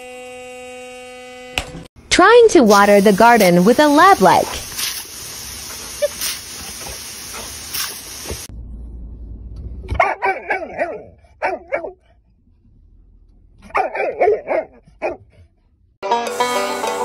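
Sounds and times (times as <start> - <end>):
dog barking and yipping: 9.9 - 12.1, 13.6 - 15.4.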